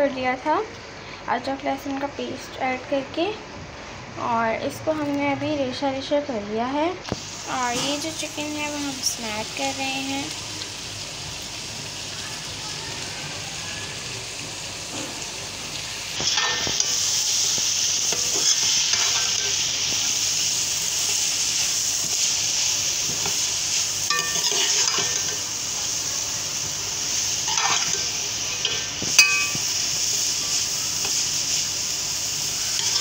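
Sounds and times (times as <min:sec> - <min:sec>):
filling sizzling in a metal pot: 0:07.0 - 0:33.0
metal spoon scraping a pot: 0:24.1 - 0:25.4
spoon clinking on pot: 0:24.1 - 0:25.4, 0:29.2 - 0:29.6.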